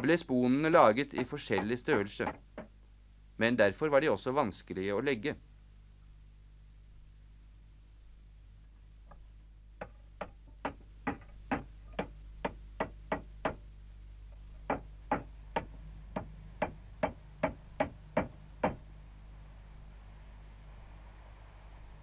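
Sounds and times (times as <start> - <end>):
hammer nailing wooden shingles: 1.2 - 2.7, 9.8 - 13.6.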